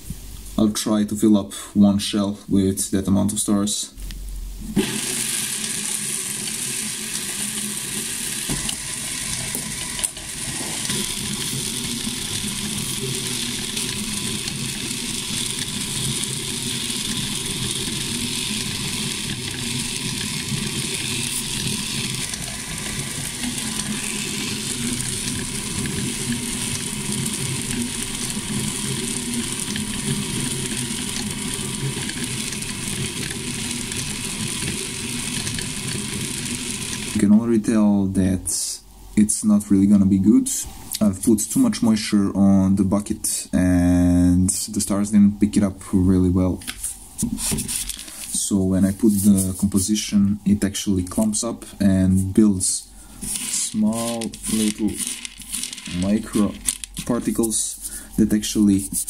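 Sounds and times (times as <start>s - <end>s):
motor hum with whine: 4.0s - 37.4s
small pellets rattling in bucket: 10.0s - 37.2s, 47.6s - 49.6s, 53.2s - 59.0s.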